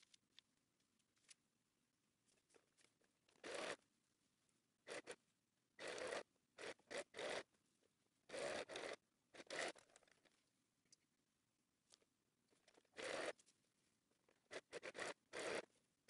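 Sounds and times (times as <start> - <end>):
sewing machine stitching: 3.4 - 3.8, 4.9 - 5.2, 5.8 - 7.5, 8.3 - 10.1, 12.9 - 13.4, 14.4 - 15.7.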